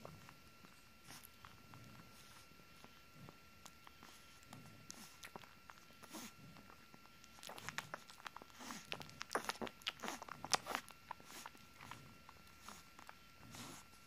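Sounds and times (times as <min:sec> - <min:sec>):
puppy suckling wet smacks: 0:03.6 - 0:06.2, 0:07.1 - 0:12.0.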